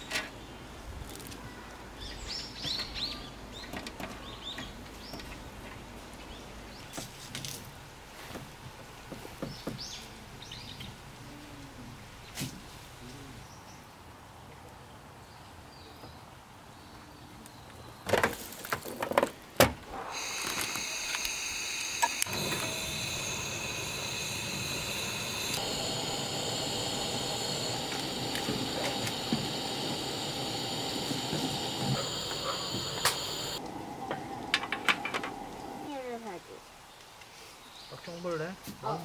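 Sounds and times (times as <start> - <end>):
steady hiss with whistling tone: 19.9 - 36.2.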